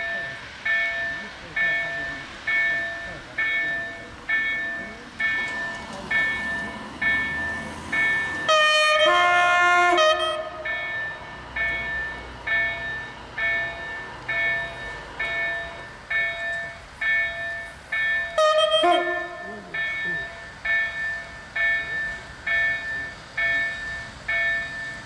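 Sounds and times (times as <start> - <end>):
level crossing warning bell: 0.0 - 25.0
two-tone train horn: 8.4 - 10.7, 18.3 - 19.8.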